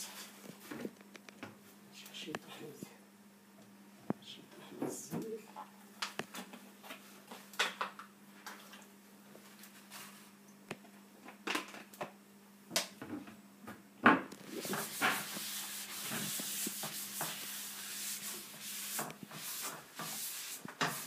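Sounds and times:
scratchy rubbing on microphone: 0:14.4 - 0:21.0.

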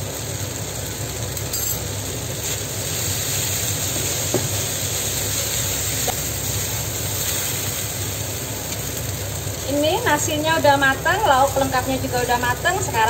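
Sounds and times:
rice sizzling in a wok: 0:00.0 - 0:13.0
spatula stirring in a wok: 0:02.0 - 0:09.6.

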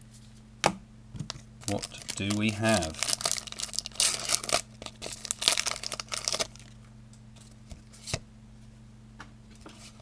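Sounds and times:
foil wrapper tearing and crinkling: 0:01.3 - 0:06.8.

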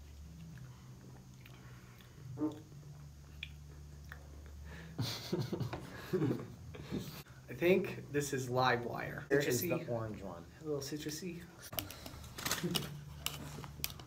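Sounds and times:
low steady hum: 0:00.0 - 0:14.0
lip smacks and mouth sounds: 0:00.4 - 0:04.6.

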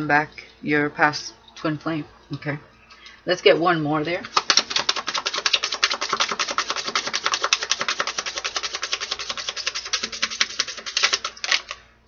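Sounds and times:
cards being shuffled: 0:04.3 - 0:11.8.

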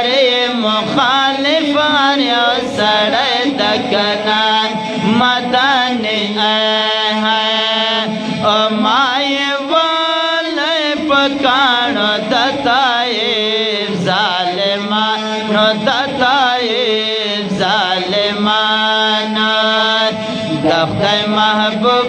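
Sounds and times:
men chanting through a microphone: 0:00.0 - 0:22.0
low held drone note: 0:01.6 - 0:10.2.

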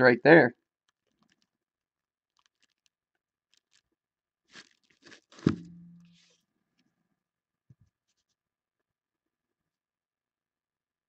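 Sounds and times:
plastic bag crinkling: 0:01.0 - 0:01.5, 0:02.3 - 0:03.9, 0:04.5 - 0:06.3
sharp knock: 0:05.4 - 0:06.2.

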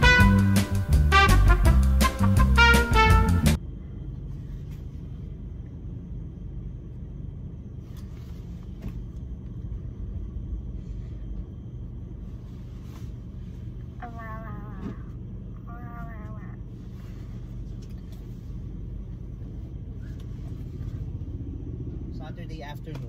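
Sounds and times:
car cabin rumble: 0:07.7 - 0:23.0.

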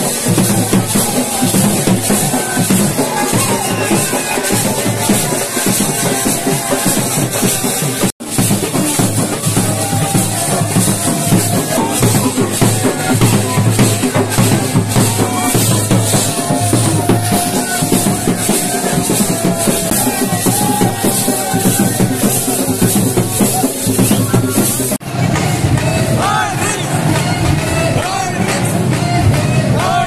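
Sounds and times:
drums beaten with sticks: 0:00.0 - 0:30.0.

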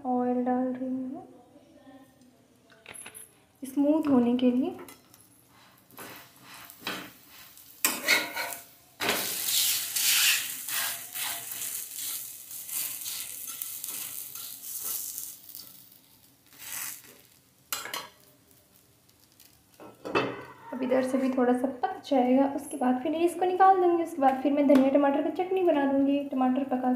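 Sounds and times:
pancake sizzling in oil: 0:05.2 - 0:20.4
metal spatula scraping griddle: 0:05.6 - 0:18.1.

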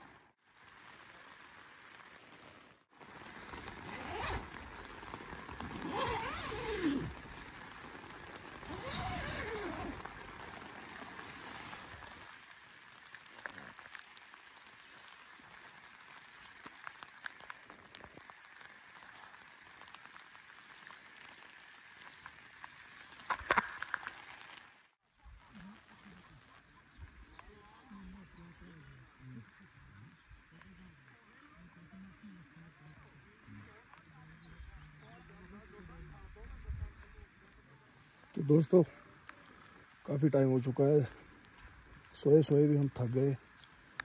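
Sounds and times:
rain pattering on tent fabric: 0:00.0 - 0:44.0
tent zipper pulled open: 0:03.0 - 0:12.4.

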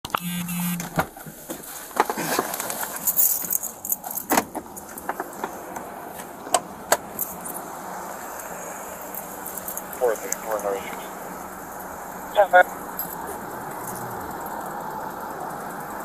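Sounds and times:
rustling: 0:01.1 - 0:06.4
keys and gear jangling: 0:02.6 - 0:05.6, 0:07.1 - 0:07.6, 0:08.4 - 0:10.0, 0:12.8 - 0:14.6
steady hum: 0:07.7 - 0:13.0.

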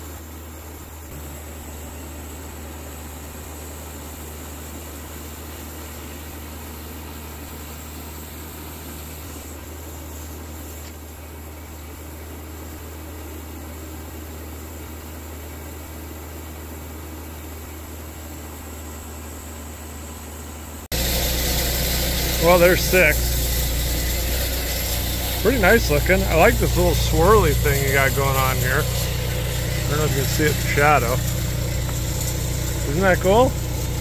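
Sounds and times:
bandsaw mill sawing wood: 0:20.9 - 0:34.0.

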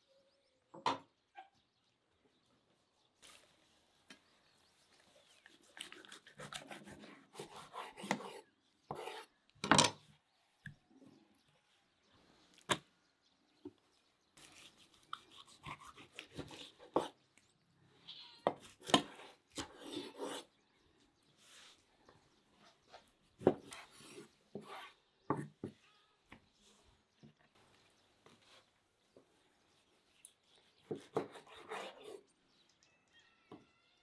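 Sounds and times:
knife slicing meat: 0:05.4 - 0:09.0, 0:14.4 - 0:17.1.

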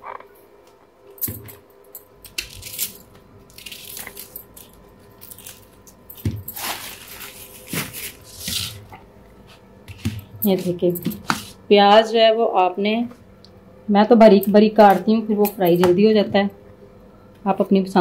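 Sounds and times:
crisp onion slicing crackle: 0:02.3 - 0:10.3.

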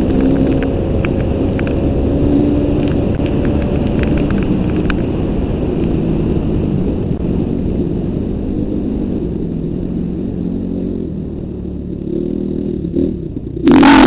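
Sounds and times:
stones ticking against bike: 0:00.1 - 0:01.9, 0:02.8 - 0:05.1
dirt bike engine revving: 0:12.0 - 0:14.0.

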